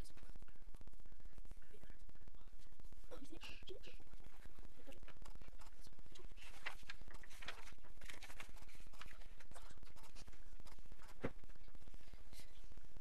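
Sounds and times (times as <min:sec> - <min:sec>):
paper rustling: 0:04.2 - 0:11.6.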